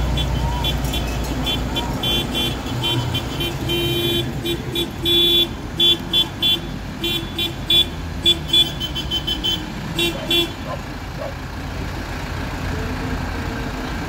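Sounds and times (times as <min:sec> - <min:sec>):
tractor diesel engines rumbling: 0:00.0 - 0:14.0
tractor horn short beeps: 0:00.1 - 0:10.6.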